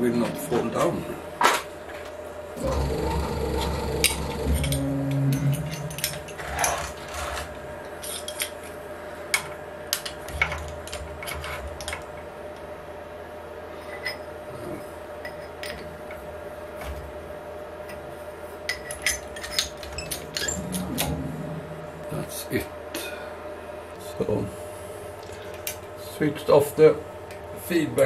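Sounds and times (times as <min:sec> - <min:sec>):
steady machine hum: 0:00.0 - 0:15.2, 0:19.7 - 0:28.0
metal tools clinking and scraping: 0:04.5 - 0:08.5.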